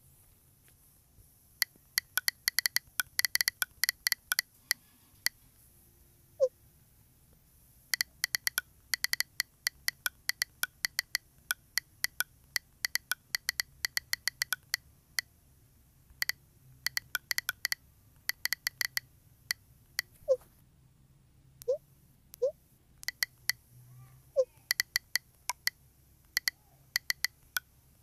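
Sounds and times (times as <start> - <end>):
smartphone keyboard taps: 1.6 - 5.4, 7.9 - 15.3, 16.1 - 19.1, 23.0 - 23.6, 24.6 - 27.7.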